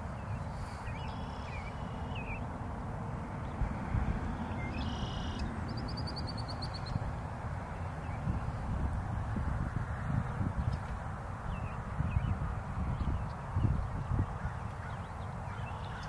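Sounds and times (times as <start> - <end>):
songbirds calling: 0.0 - 2.5, 3.1 - 7.1, 10.1 - 16.0.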